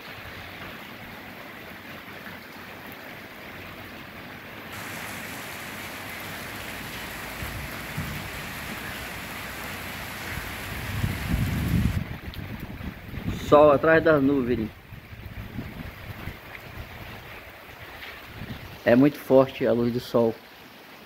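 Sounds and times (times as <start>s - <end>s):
light rain falling: 0.0s - 21.0s
wind buffeting microphone: 4.7s - 18.8s.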